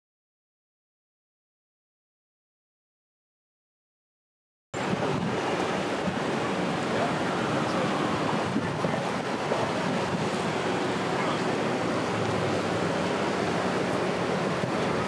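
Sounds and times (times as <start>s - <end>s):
floodwater rushing: 4.8s - 15.0s
wind on microphone: 4.8s - 15.0s.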